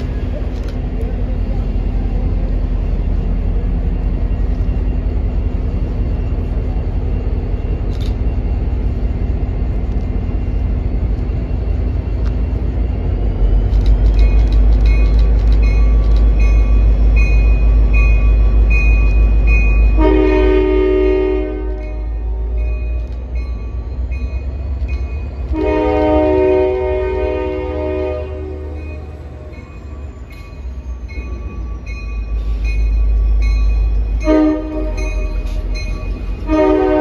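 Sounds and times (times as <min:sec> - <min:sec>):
diesel locomotive rumbling: 0:00.0 - 0:37.0
locomotive horn chord: 0:20.0 - 0:22.2, 0:25.5 - 0:28.9, 0:34.2 - 0:35.2, 0:36.4 - 0:37.0
bell ringing: 0:28.8 - 0:36.5.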